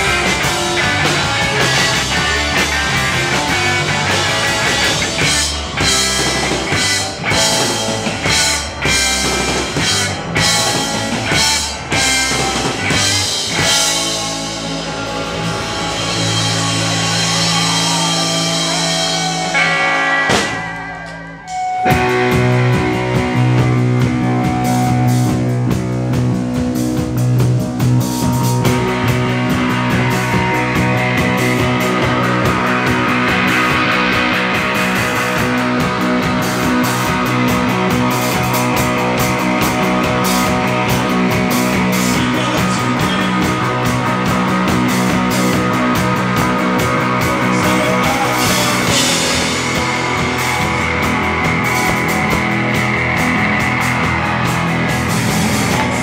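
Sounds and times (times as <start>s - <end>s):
drum kit: 0.0s - 56.0s
electric guitar: 0.0s - 56.0s.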